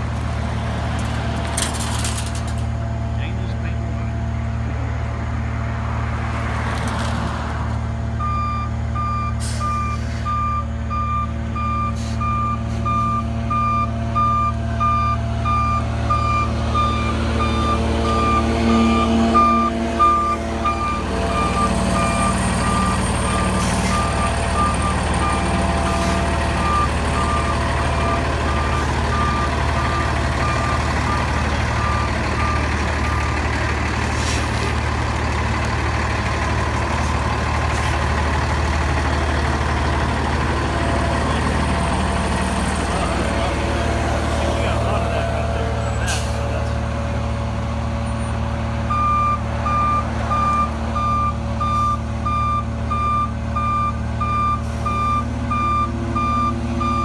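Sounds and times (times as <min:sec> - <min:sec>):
truck engine running: 0:00.0 - 0:57.0
reversing alarm beeping: 0:08.2 - 0:33.4, 0:48.9 - 0:57.0.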